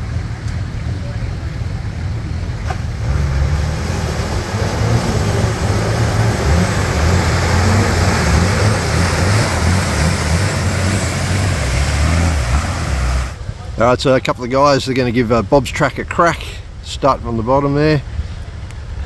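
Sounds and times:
diesel engine under load: 0:00.0 - 0:14.8.

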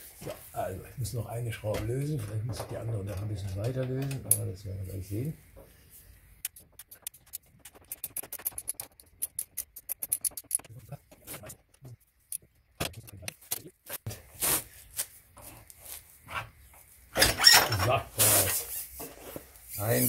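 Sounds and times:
ratchet wrench clicking: 0:06.4 - 0:10.7.

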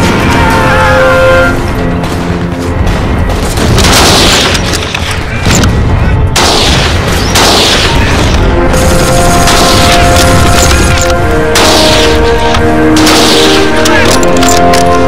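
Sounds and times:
gunfire: 0:03.2 - 0:14.6.

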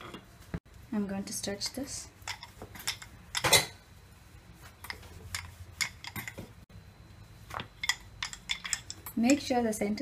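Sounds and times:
knocks and clinks: 0:02.3 - 0:03.8, 0:04.8 - 0:06.5, 0:07.7 - 0:09.5.

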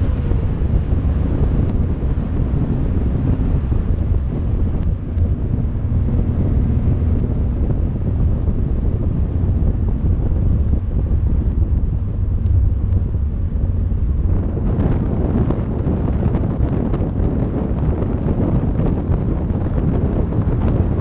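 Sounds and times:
car running gear rumble: 0:00.0 - 0:21.0
road noise: 0:00.0 - 0:21.0
wind buffeting microphone: 0:00.0 - 0:21.0.

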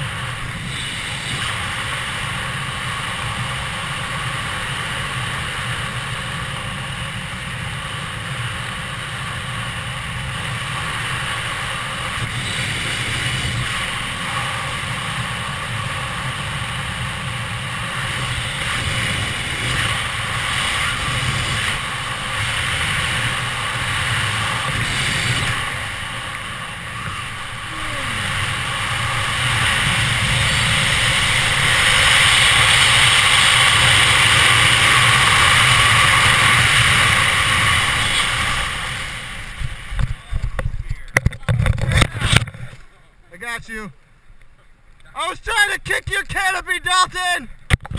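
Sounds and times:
wind rushing over microphone: 0:00.0 - 0:42.8.

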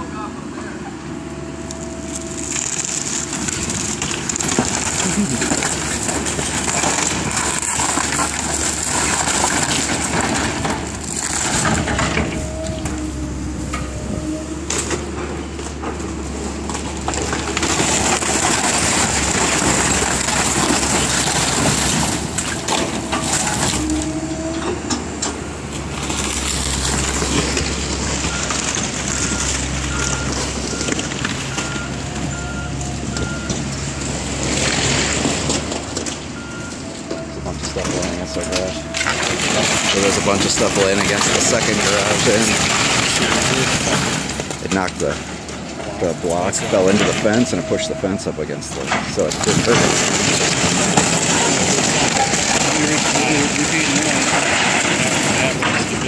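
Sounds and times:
diesel engine drone: 0:00.0 - 0:56.0
debris crunching and cracking: 0:01.8 - 0:56.0
hydraulic whine: 0:09.9 - 0:34.0
backup alarm beeping: 0:28.2 - 0:33.6.

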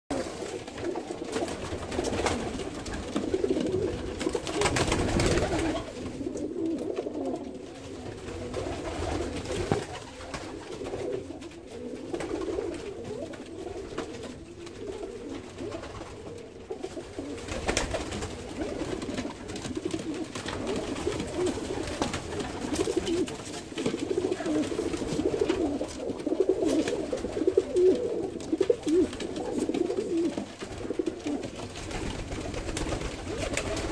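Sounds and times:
pigeons cooing: 0:00.1 - 0:33.9.

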